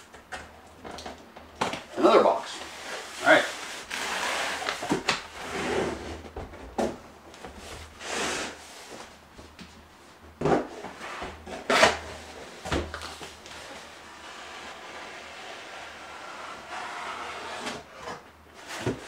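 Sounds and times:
cardboard scraping against cardboard: 2.7s - 6.3s, 13.6s - 19.0s.

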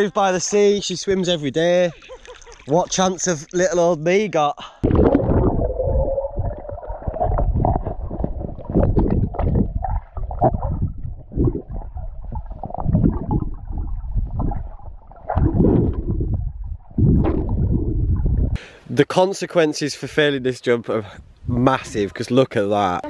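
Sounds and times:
bubbles: 4.8s - 18.6s
muffled underwater water gurgling: 4.8s - 18.6s.

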